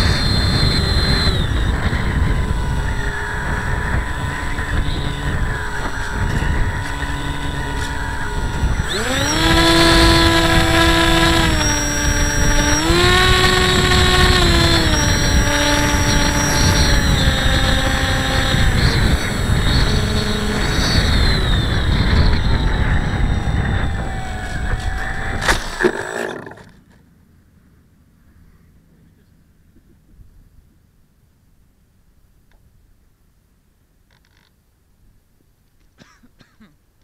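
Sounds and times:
wind rushing over microphone: 0.0s - 26.0s
electric motor and propeller whine: 0.0s - 26.9s.

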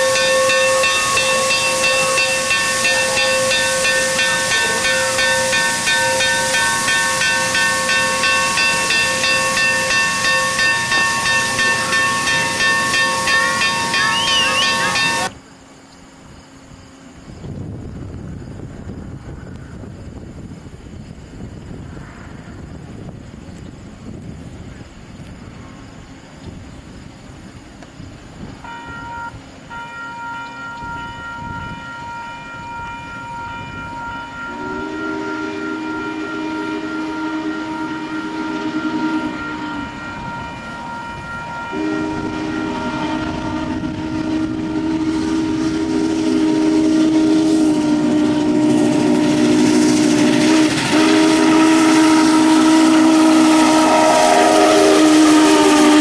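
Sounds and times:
chime whistle long blasts: 0.0s - 15.4s, 28.6s - 56.0s
steam locomotive passing: 0.0s - 56.0s.

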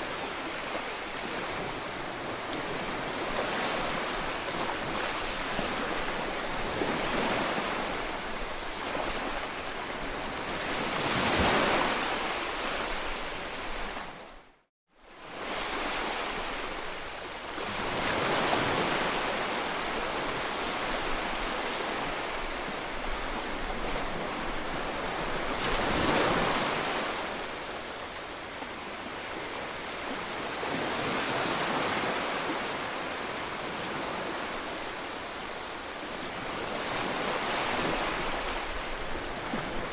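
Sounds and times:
sea waves washing up beach: 17.5s - 39.9s.

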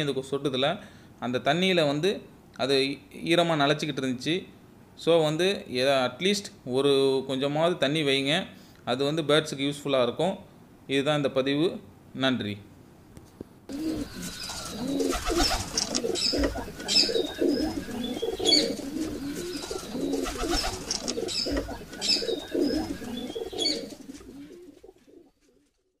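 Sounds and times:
small birds chirping: 13.7s - 24.9s
doves cooing: 13.7s - 25.6s.

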